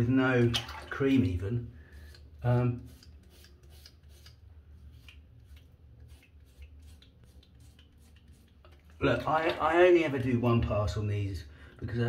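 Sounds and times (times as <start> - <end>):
razor rasping on stubble: 2.8 - 8.6.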